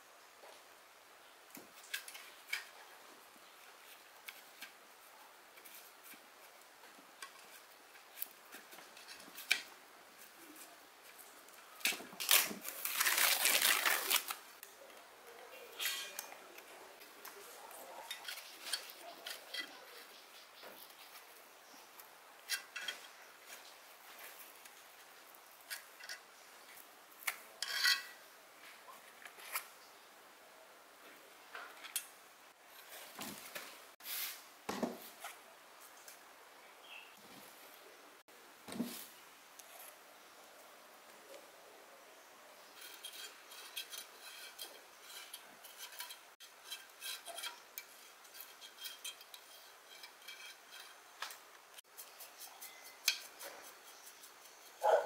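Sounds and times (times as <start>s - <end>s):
paper cone scraping and tearing: 12.2s - 14.4s.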